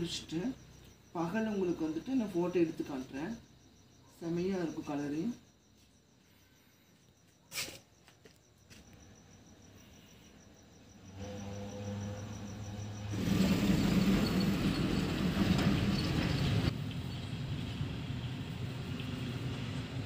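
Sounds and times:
crickets chirping: 0.0s - 20.0s
engine humming: 11.1s - 20.0s.

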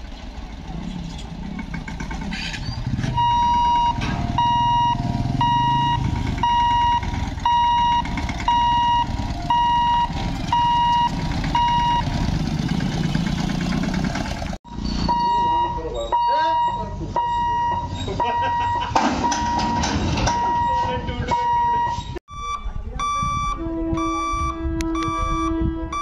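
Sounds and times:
motorcycle and tractor engines: 0.0s - 26.0s
barrier warning buzzer beeping: 3.2s - 12.1s.

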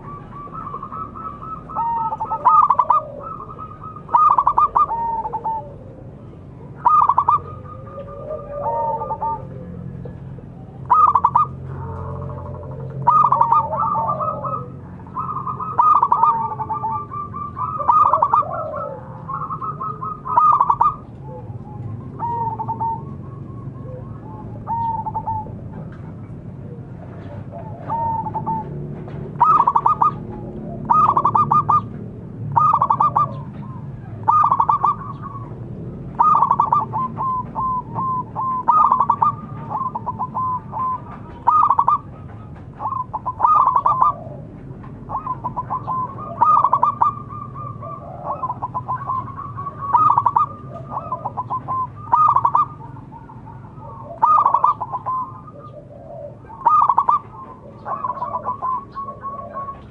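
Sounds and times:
dove cooing in staccato runs: 0.0s - 59.9s.

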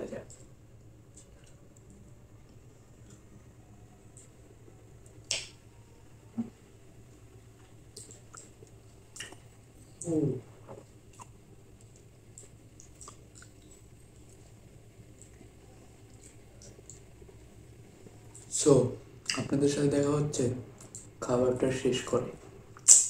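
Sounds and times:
mouth clicks and smacks: 5.2s - 5.6s, 7.9s - 10.1s, 10.7s - 13.8s, 22.8s - 23.0s.

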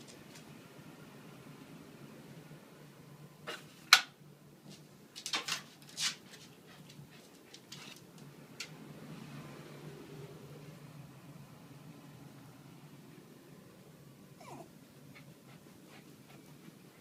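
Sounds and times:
dog scuffling on tiled floor: 4.7s - 8.3s
low steady hum: 8.1s - 17.0s.

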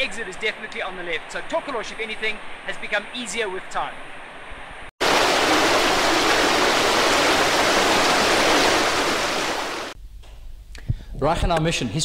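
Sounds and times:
roar of rushing water: 5.0s - 10.0s.

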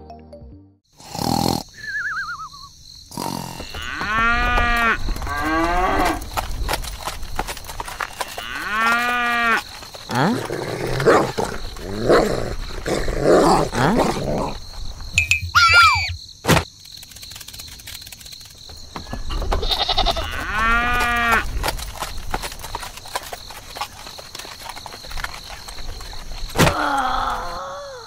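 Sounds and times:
cow mooing: 3.4s - 6.2s.

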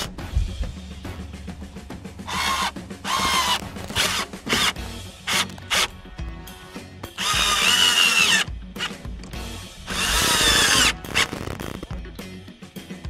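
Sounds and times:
cordless drill motor whining: 2.3s - 6.0s, 7.2s - 8.9s, 9.9s - 11.8s.

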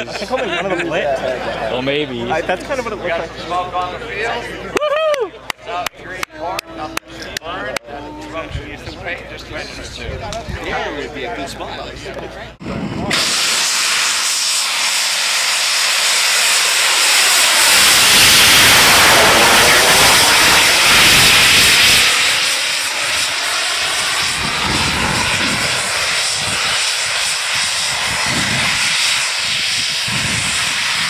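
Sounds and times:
rocket belt jet hiss: 12.8s - 31.0s.

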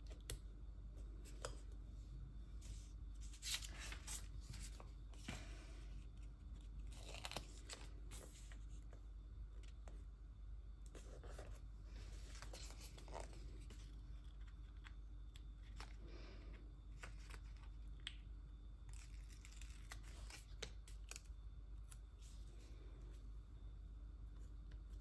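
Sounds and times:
paper sticker sheet rustling: 2.6s - 8.9s.

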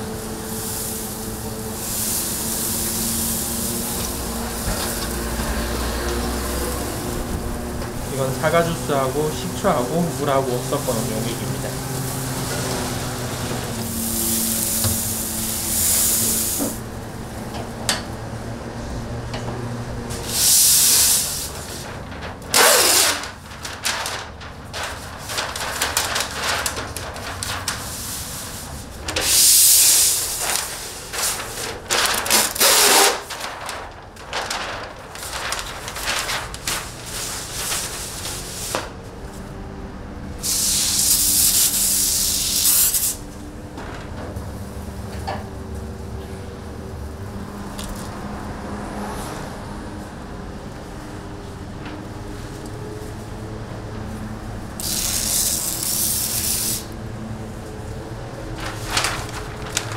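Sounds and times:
spray bottle spritzing: 54.8s - 56.9s.

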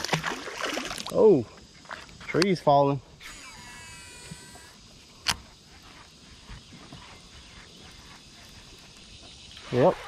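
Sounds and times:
fishing reel whirring: 3.2s - 5.4s.

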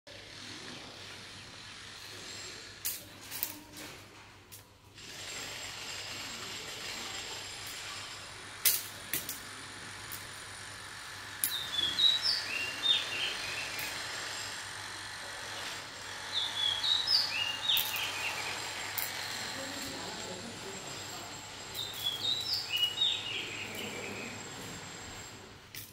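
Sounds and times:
steady background noise: 0.1s - 25.9s
small bird chirping: 11.5s - 14.0s, 16.0s - 20.2s, 21.8s - 24.5s.

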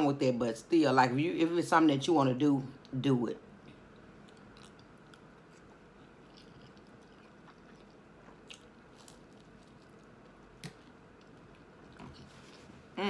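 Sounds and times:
low steady hum: 0.0s - 13.0s
close-up chewing: 3.7s - 12.7s.

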